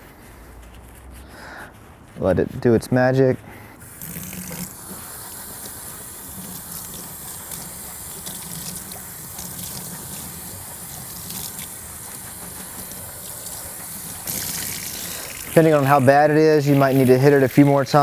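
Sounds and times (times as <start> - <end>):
tap water running into sink: 3.8 - 17.6
foam filter squeezed under water: 3.8 - 17.8.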